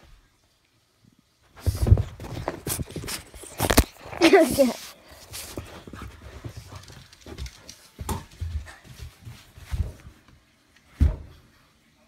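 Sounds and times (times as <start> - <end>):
dog scuffling on carpet: 1.6 - 10.3.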